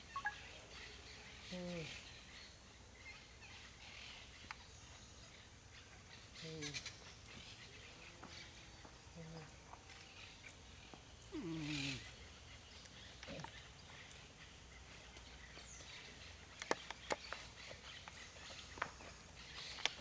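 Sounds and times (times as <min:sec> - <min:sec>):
faint outdoor background: 0:00.0 - 0:20.0
man's footsteps on dirt: 0:16.9 - 0:20.0.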